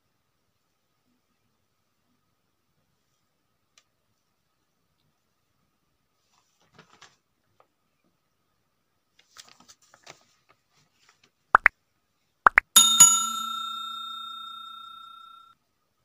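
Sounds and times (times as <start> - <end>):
bell ding: 12.7 - 15.5.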